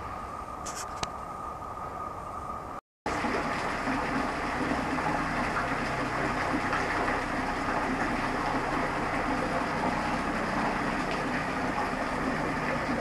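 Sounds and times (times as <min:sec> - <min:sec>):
small waterfall splashing on rocks: 0:03.1 - 0:13.0.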